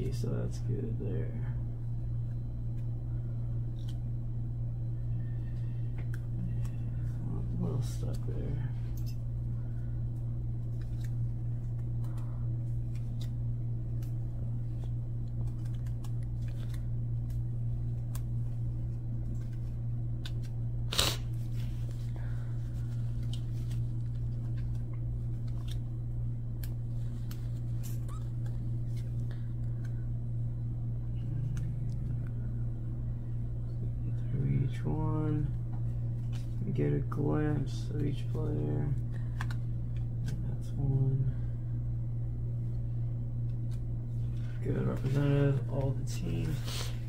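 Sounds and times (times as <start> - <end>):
low hum: 0.0 - 47.0
trading cards being handled: 5.3 - 30.2, 35.4 - 41.2, 43.4 - 47.0.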